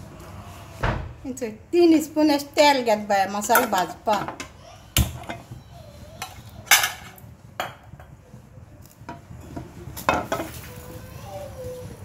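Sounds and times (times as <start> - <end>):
utensils knocking on a pan: 3.4 - 5.6, 6.2 - 8.2, 9.1 - 10.6.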